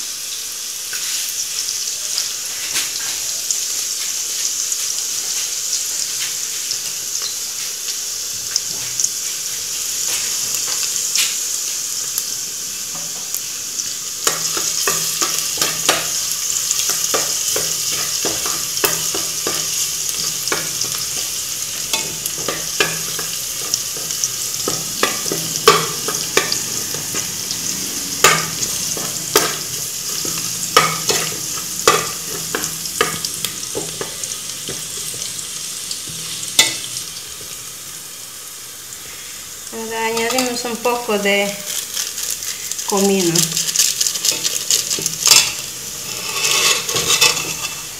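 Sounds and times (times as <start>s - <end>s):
garlic sizzling in hot oil: 0.0s - 47.9s
ladle scraping a metal pot: 44.2s - 47.9s.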